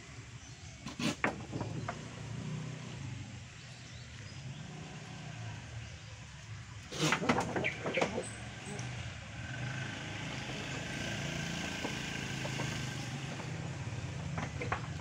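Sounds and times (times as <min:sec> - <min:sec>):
sharp knocks: 0:11.6 - 0:13.6.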